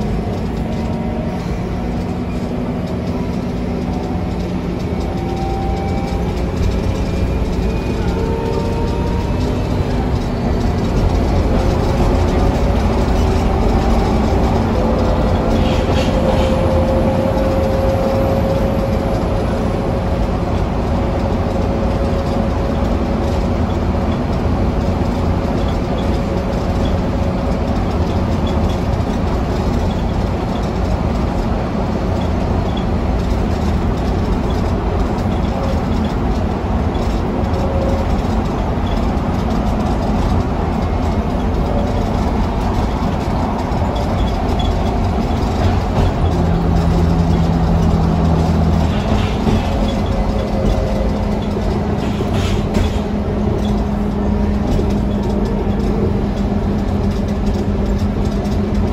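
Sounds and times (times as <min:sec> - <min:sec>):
bus engine drone: 0:00.0 - 0:58.9
road and body rumble: 0:00.0 - 0:58.9.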